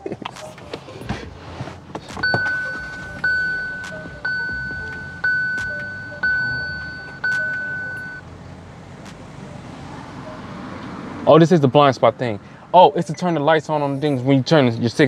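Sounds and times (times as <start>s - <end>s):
electronic warning chime: 2.2s - 8.2s.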